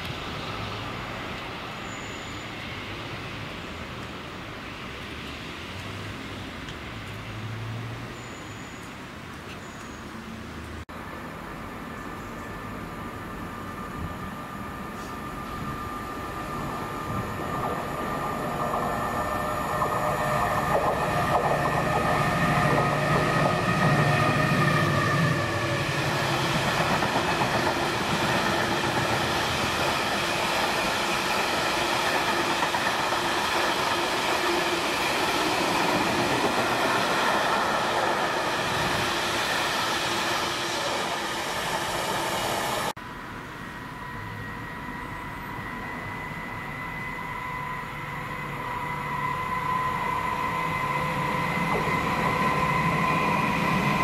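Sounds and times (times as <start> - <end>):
diesel locomotive engine running: 13.7 - 54.0.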